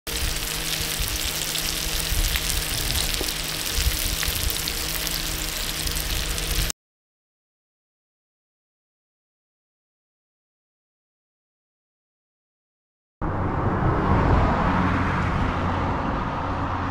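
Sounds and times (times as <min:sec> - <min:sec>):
shrimp sizzling in oil: 0:00.1 - 0:06.7.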